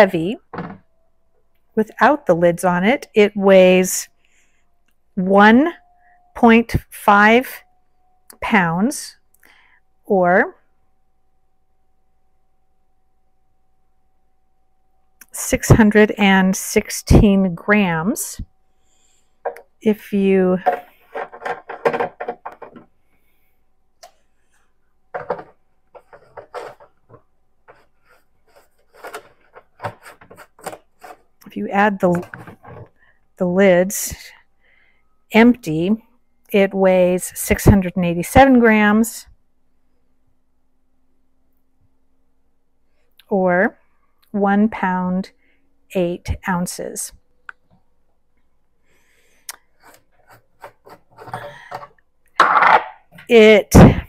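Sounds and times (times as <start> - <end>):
plastic lids clicking and rattling: 20.6 - 22.9, 25.2 - 27.2
small plastic scrapes: 25.2 - 31.3.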